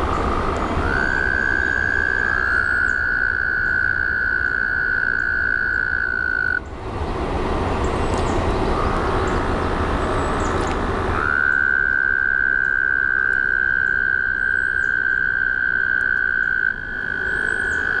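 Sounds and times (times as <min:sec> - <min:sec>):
toad trilling: 0:00.0 - 0:06.7, 0:11.2 - 0:18.0.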